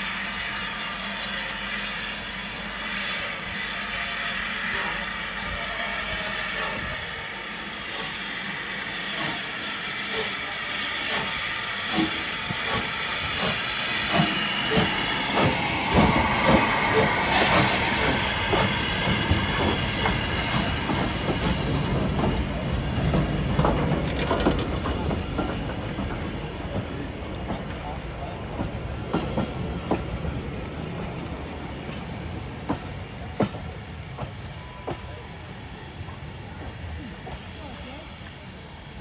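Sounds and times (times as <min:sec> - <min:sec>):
steam hissing: 0:00.0 - 0:31.1
steam locomotive exhaust beats: 0:00.0 - 0:39.0.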